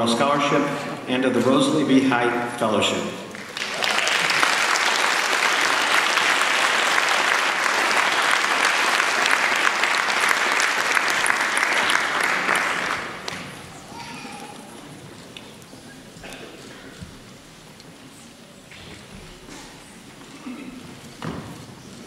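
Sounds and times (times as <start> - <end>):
audience applauding: 3.3 - 14.2.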